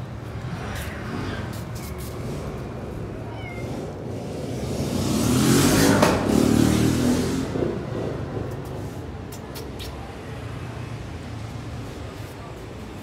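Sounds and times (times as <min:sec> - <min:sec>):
motor vehicle passing: 0:00.3 - 0:08.9
kitten meowing: 0:03.2 - 0:04.0.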